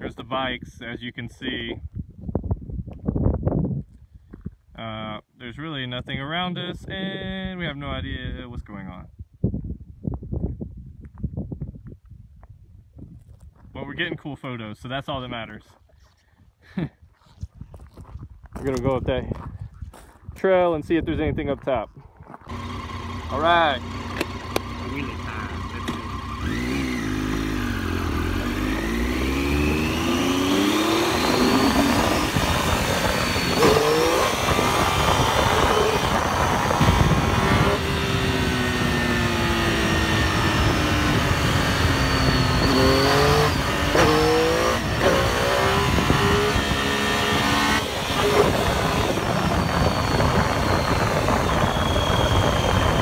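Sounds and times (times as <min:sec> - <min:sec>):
wind rushing over microphone: 0:00.0 - 0:04.8, 0:06.1 - 0:13.8, 0:17.4 - 0:22.6, 0:26.1 - 0:53.0
motorcycle engine accelerating: 0:22.5 - 0:53.0.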